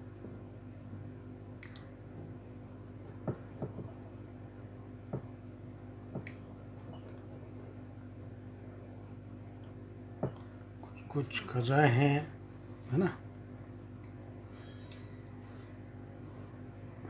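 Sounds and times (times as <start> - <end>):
steady low hum: 0.0 - 17.0
pencil knocking on paper: 2.2 - 4.2, 5.1 - 5.4, 6.1 - 7.7
pencil scratching on paper: 2.2 - 4.7, 6.4 - 9.7.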